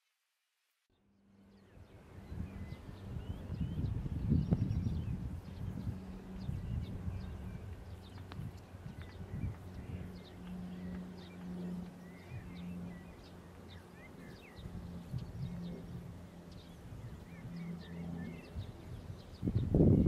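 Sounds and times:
birds chirping: 0.9 - 20.0
low hum and rumble: 1.1 - 20.0.

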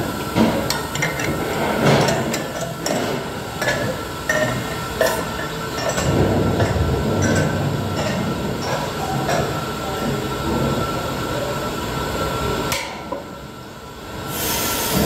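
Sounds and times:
machinery noise: 0.0 - 15.0
gas hissing: 14.2 - 15.0.

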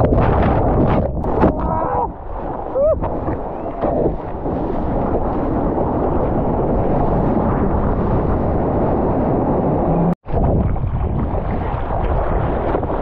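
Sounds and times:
sea water rushing and splashing: 0.0 - 13.0
wind buffeting microphone: 0.0 - 13.0.

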